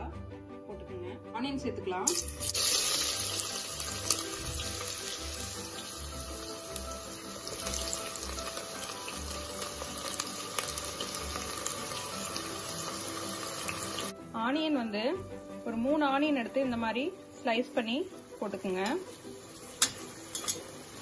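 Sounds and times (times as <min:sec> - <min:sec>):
onions sizzling in oil: 0:02.1 - 0:14.1, 0:17.7 - 0:21.0.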